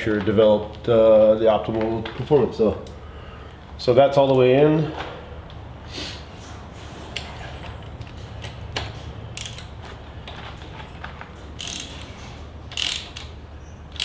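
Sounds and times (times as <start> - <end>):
ratchet clicking: 9.3 - 9.7, 11.6 - 14.0.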